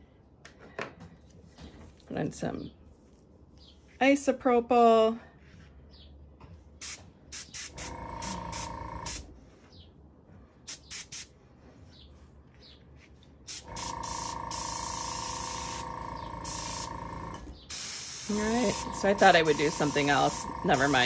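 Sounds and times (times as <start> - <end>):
airbrush air hissing: 13.5 - 17.0, 17.7 - 21.0.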